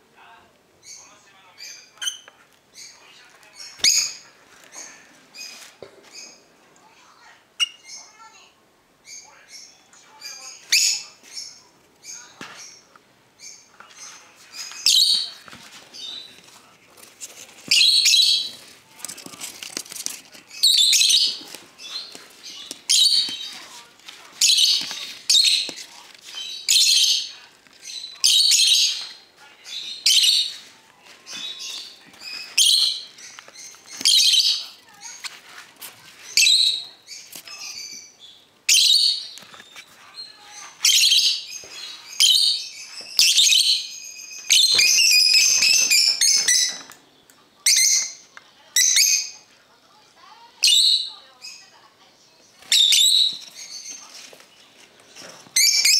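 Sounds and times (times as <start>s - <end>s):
parrot chicks calling: 0.8s - 6.4s, 7.6s - 8.4s, 9.0s - 16.4s, 17.6s - 46.9s, 47.6s - 49.5s, 50.6s - 51.8s, 52.5s - 55.9s.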